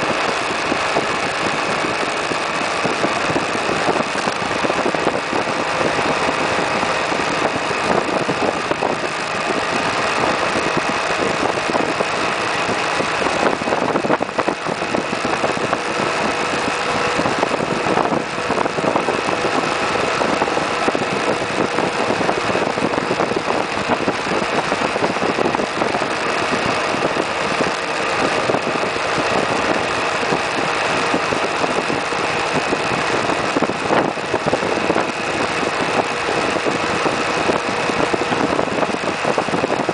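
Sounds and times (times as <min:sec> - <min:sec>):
scooter engine cruising: 0:00.0 - 0:39.9
wind and road noise: 0:00.0 - 0:39.9.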